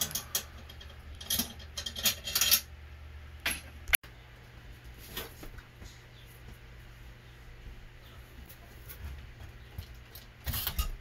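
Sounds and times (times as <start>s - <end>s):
metal tools clinking and rattling: 0.0s - 2.7s.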